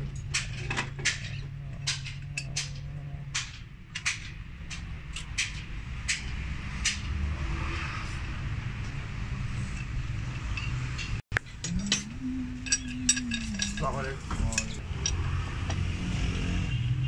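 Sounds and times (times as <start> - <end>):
metal clicks and clinks: 0.1 - 7.1, 9.6 - 15.4.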